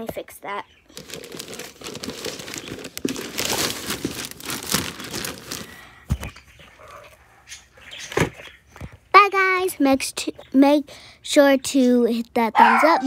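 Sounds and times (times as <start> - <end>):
crinkling handling noise: 0.9 - 7.2.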